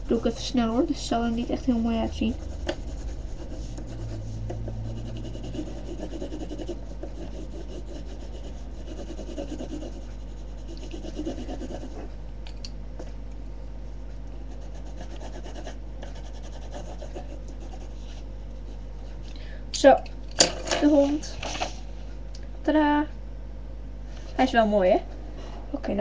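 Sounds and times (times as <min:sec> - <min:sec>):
pencil scratching on paper: 0:00.1 - 0:12.1, 0:14.5 - 0:18.8.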